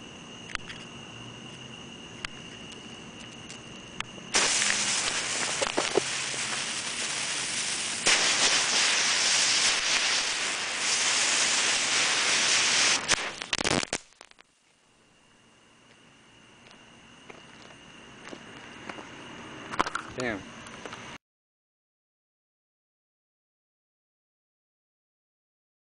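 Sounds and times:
insect chirring: 0:00.0 - 0:21.2
firework hissing: 0:02.7 - 0:14.8
firework crackles: 0:04.3 - 0:14.9.

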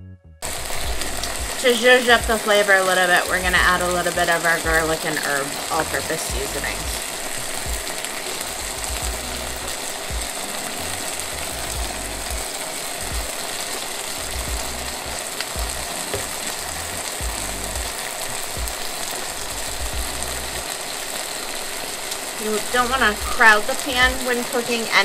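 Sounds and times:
low hum: 0:00.0 - 0:02.4, 0:05.7 - 0:13.4, 0:14.1 - 0:20.8
chicken sizzling in a frying pan: 0:00.4 - 0:25.0.

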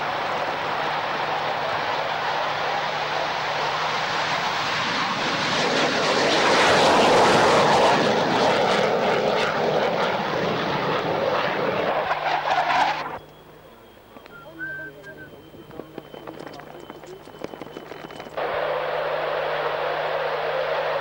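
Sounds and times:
jet roar with crackle: 0:00.0 - 0:13.4, 0:14.1 - 0:21.0.

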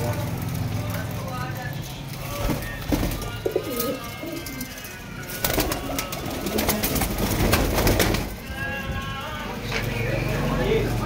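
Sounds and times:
pigeons cooing: 0:02.2 - 0:08.4
wings flapping: 0:02.2 - 0:08.5.

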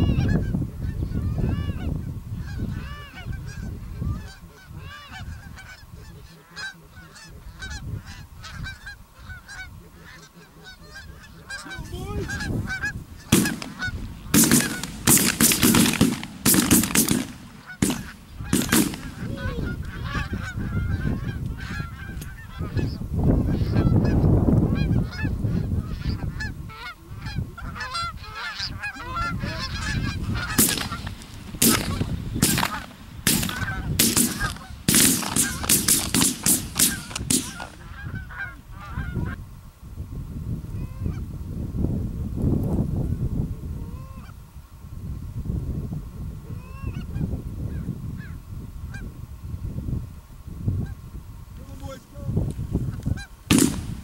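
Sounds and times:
geese honking: 0:00.0 - 0:39.4, 0:52.9 - 0:54.0.

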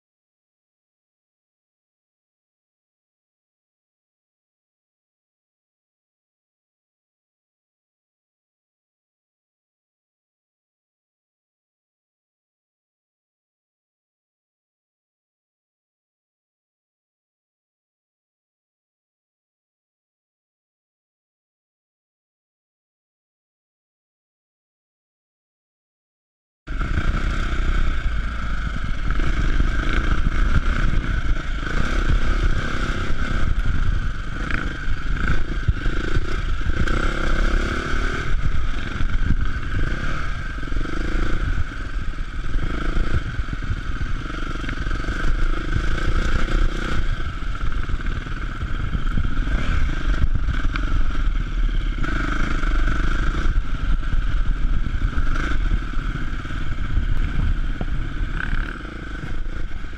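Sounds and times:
motorcycle engine running: 0:26.7 - 0:59.9.

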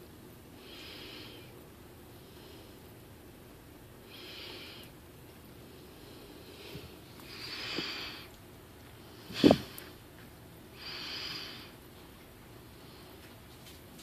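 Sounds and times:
person breathing slowly: 0:00.5 - 0:03.2, 0:04.0 - 0:05.0, 0:05.6 - 0:08.4, 0:10.7 - 0:11.8.

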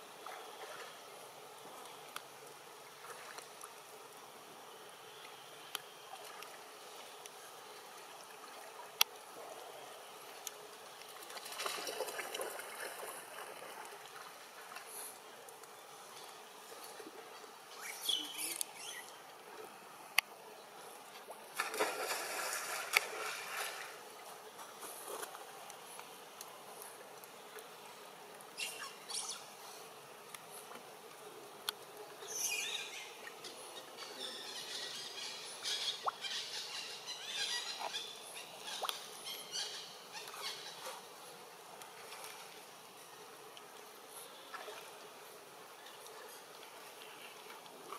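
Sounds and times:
trickle of flowing water: 0:00.0 - 0:47.9
water splashing: 0:11.0 - 0:14.9, 0:21.2 - 0:24.1.

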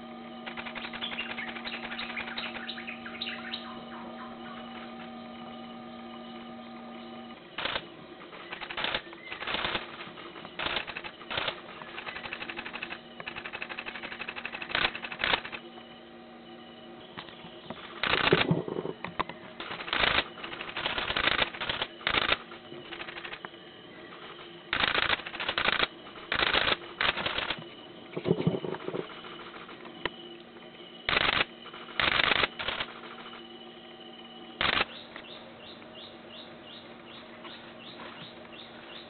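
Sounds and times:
camera shutters clicking in bursts: 0:00.5 - 0:02.7, 0:07.6 - 0:07.8, 0:08.5 - 0:15.6, 0:18.0 - 0:18.6, 0:19.6 - 0:23.4, 0:24.7 - 0:27.6, 0:31.1 - 0:33.3, 0:34.6 - 0:34.9.

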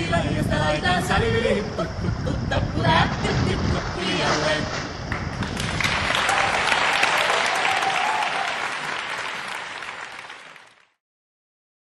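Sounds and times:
audience applauding: 0:05.1 - 0:11.0.

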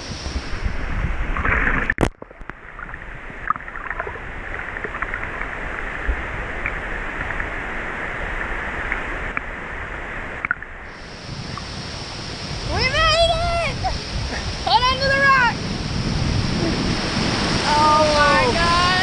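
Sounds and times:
water sloshing and lapping: 0:01.2 - 0:13.2.

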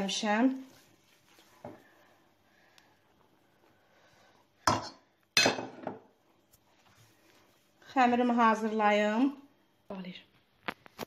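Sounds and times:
hands working dough: 0:00.0 - 0:02.2.

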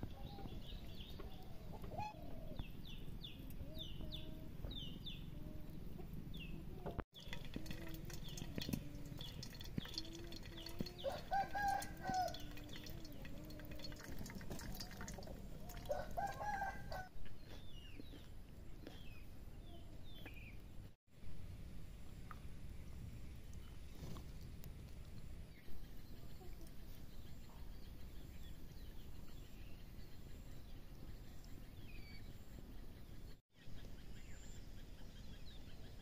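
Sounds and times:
small birds chirping: 0:00.0 - 0:20.9, 0:23.2 - 0:36.0
chickens clucking: 0:00.1 - 0:02.7, 0:03.3 - 0:19.1.

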